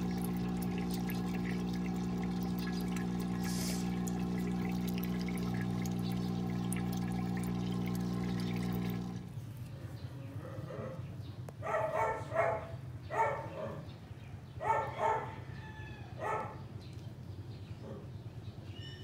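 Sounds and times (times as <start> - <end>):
dog barking: 11.6 - 13.9, 14.6 - 15.4, 16.2 - 16.6.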